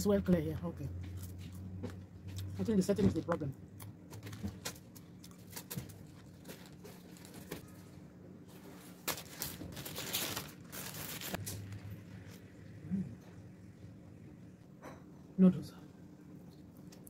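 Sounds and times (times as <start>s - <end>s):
paper wrapper rustling: 5.4s - 7.9s, 8.5s - 12.4s.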